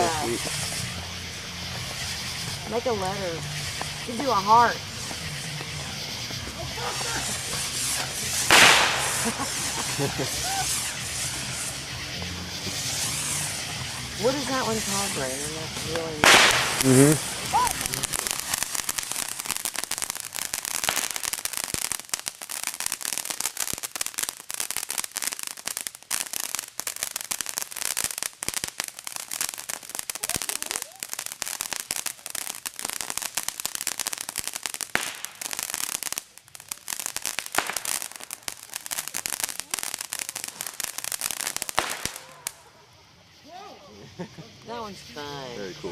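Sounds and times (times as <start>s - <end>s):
sparkler hissing and crackling: 0.0s - 45.9s.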